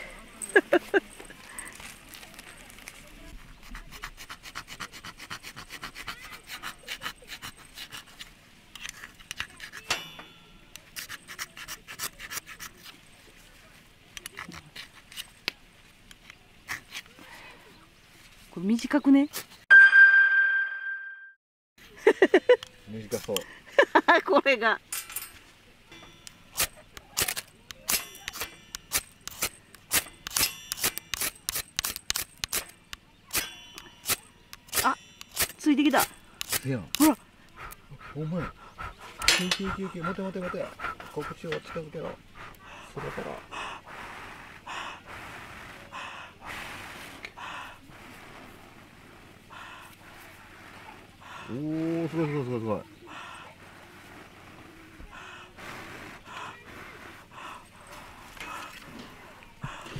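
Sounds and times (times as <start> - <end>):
fire-starter rod scraped with steel: 3.7 - 13.1, 26.0 - 37.2
brief metallic ring: 19.7 - 21.3.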